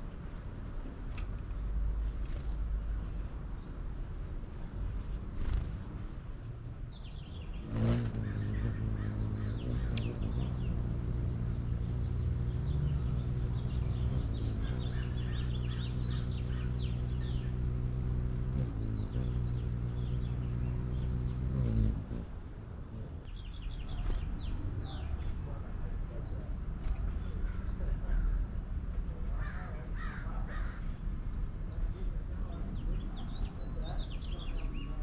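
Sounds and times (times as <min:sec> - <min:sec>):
small birds chirping: 0:02.0 - 0:03.9, 0:05.0 - 0:06.2, 0:06.9 - 0:35.0
hummingbird wings humming: 0:05.3 - 0:05.9, 0:07.4 - 0:23.3.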